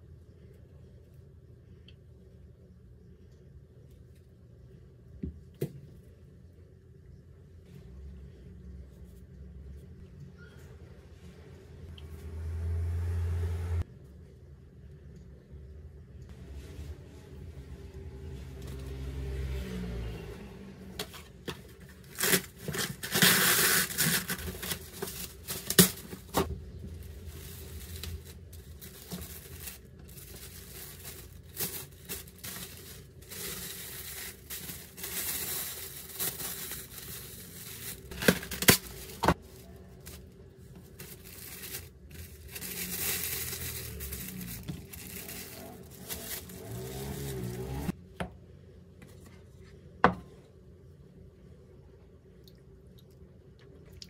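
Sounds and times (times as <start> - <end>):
plastic wrap crinkling: 21.0 - 48.0.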